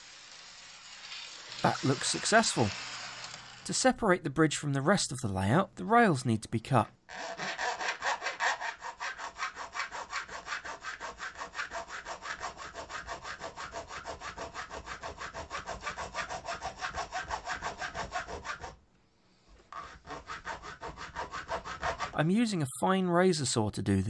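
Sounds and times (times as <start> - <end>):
saw cutting through metal rail: 0.0 - 3.7, 7.1 - 18.8, 19.8 - 22.2.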